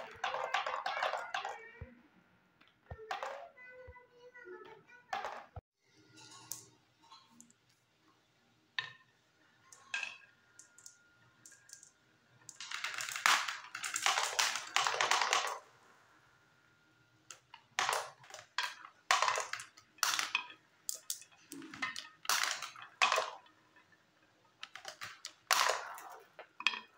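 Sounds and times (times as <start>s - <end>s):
marbles clicking together: 0.0s - 1.7s, 9.7s - 15.6s, 17.3s - 23.6s, 24.6s - 26.9s
marbles rolling on wooden ramps: 0.0s - 1.7s, 2.6s - 3.6s, 5.1s - 5.6s, 9.7s - 15.7s, 17.3s - 26.9s.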